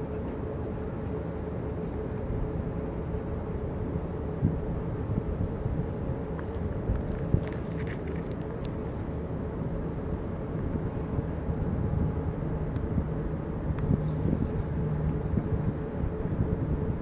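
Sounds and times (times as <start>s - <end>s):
faint constant hum: 0.0s - 17.0s
ship engine rumbling: 0.0s - 17.0s.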